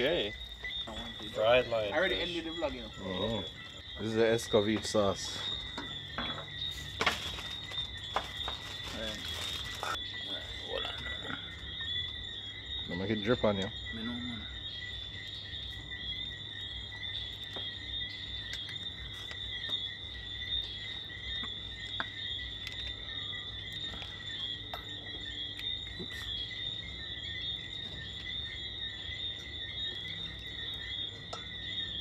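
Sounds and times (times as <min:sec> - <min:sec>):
crickets chirping: 0:00.0 - 0:32.0.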